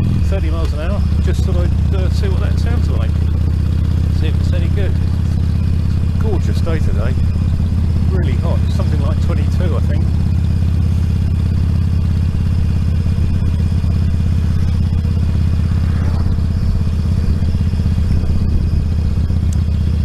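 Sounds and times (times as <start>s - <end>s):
motorcycle engine running: 0.0s - 20.0s
wind noise: 13.4s - 19.6s.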